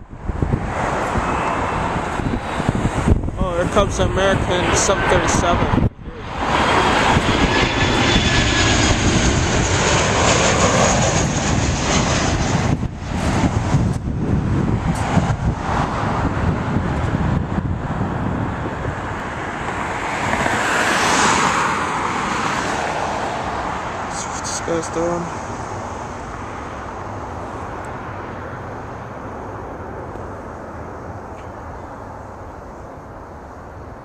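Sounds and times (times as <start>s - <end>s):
high jet whine: 0.0s - 34.0s
jet engines roaring overhead: 0.0s - 34.0s.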